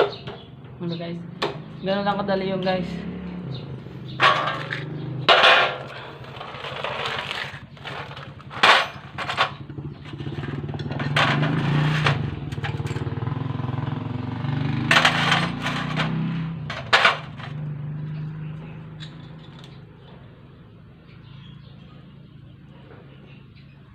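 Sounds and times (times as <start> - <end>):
sharp metal clanks: 4.1 - 13.2, 14.8 - 17.7.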